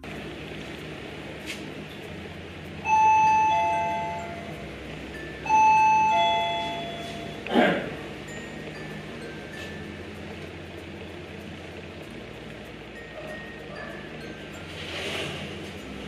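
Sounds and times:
ding-dong doorbell chime: 2.8s - 7.5s.

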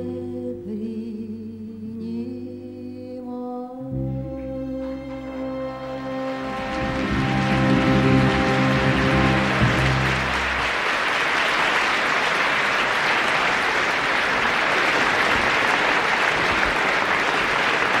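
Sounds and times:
orchestra holding final chord: 4.1s - 10.9s
audience applauding: 6.2s - 18.0s.

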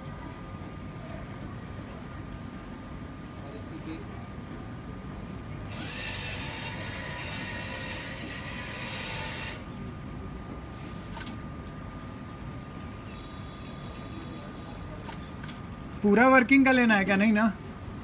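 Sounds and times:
turntable motor whirring: 5.7s - 9.7s.

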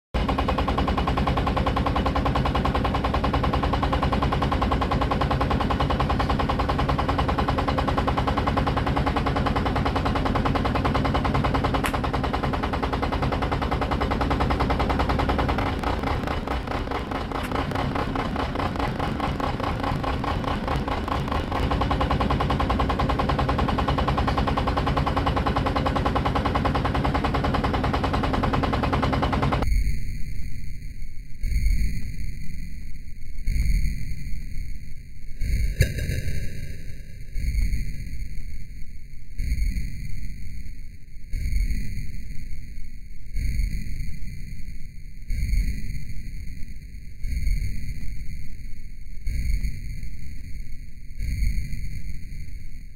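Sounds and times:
diesel engine clattering: 0.2s - 29.6s.

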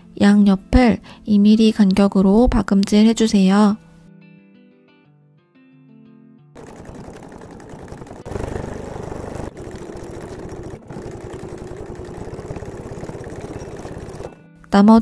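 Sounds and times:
sewing machine stitching: 6.6s - 14.4s.

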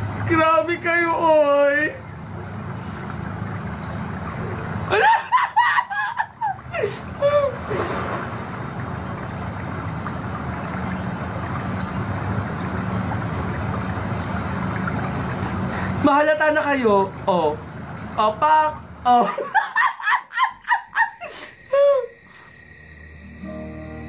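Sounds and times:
steady low hum: 0.0s - 21.0s
person laughing: 4.9s - 7.6s, 19.1s - 22.2s.

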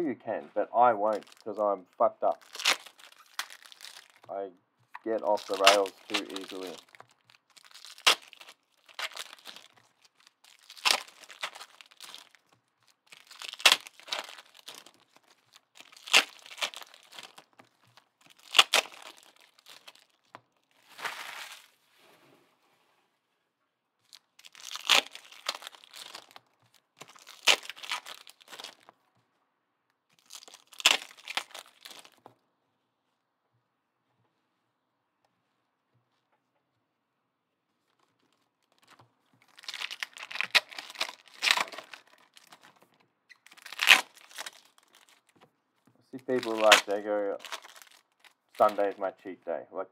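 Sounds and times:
card packaging crinkling and tearing: 0.8s - 4.3s, 5.0s - 21.8s, 24.0s - 28.9s, 30.1s - 32.3s, 37.8s - 45.4s, 46.2s - 49.1s.

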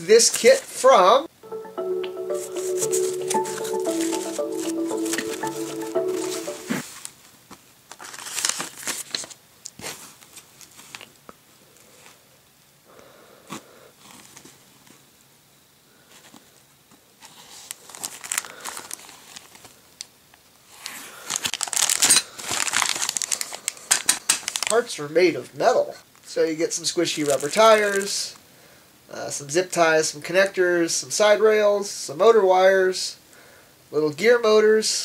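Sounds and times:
plastic bags crinkling: 7.9s - 9.4s, 17.8s - 19.7s, 21.3s - 24.8s, 27.2s - 28.1s.

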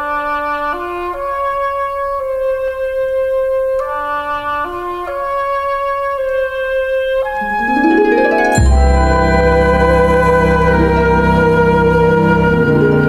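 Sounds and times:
rising sweep: 7.4s - 11.3s
gentle background music: 7.4s - 13.0s.

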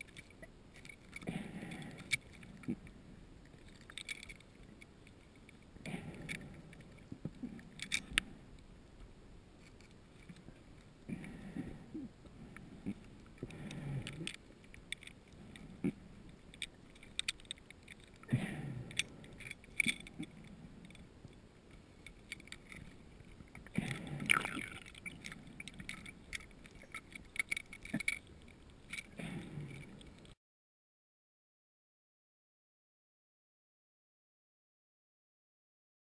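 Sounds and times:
small clicks and crackles: 0.0s - 30.4s
exhaled bubbles gurgling underwater: 23.6s - 25.3s.

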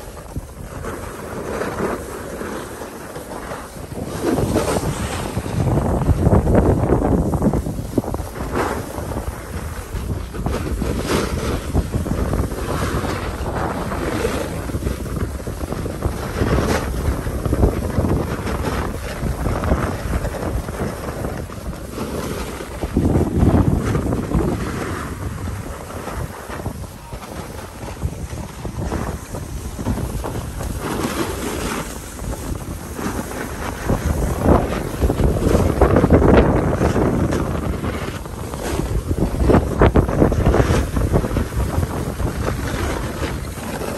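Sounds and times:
snowboard scraping on snow: 0.0s - 43.9s
wind buffeting microphone: 0.0s - 43.9s.

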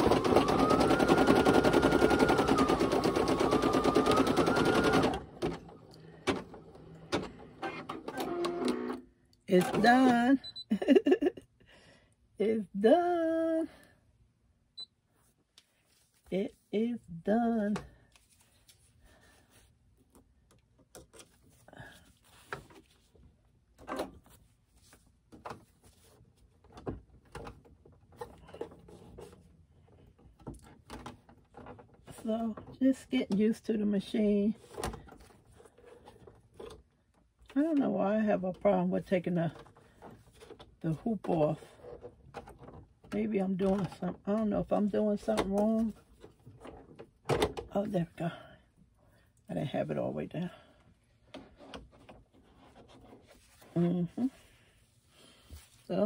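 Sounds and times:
embroidery machine stitching: 0.0s - 9.0s.

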